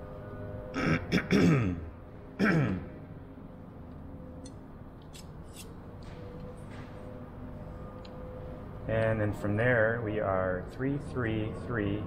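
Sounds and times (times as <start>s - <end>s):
man clearing his throat: 0.8s - 3.0s.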